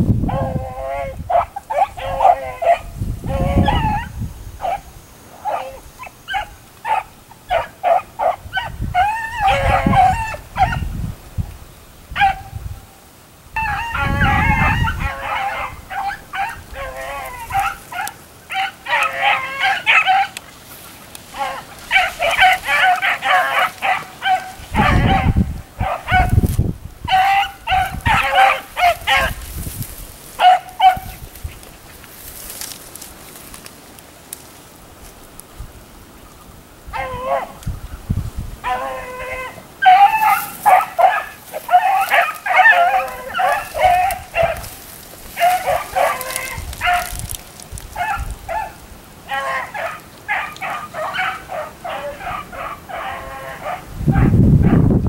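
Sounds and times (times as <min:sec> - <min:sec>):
hound baying and barking: 0:00.3 - 0:10.9, 0:12.2 - 0:12.5, 0:13.6 - 0:20.4, 0:21.3 - 0:29.5, 0:30.3 - 0:31.2, 0:36.9 - 0:37.6, 0:38.6 - 0:54.9.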